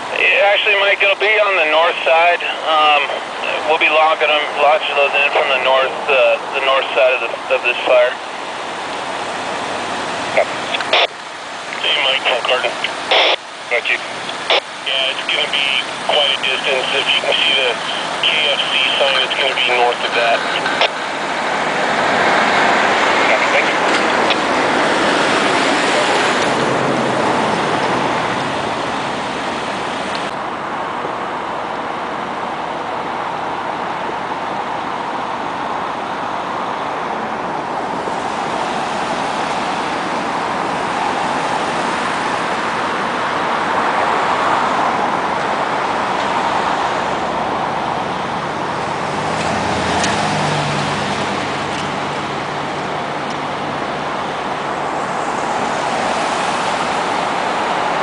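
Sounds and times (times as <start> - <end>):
brush fire rushing: 0.0 - 30.8.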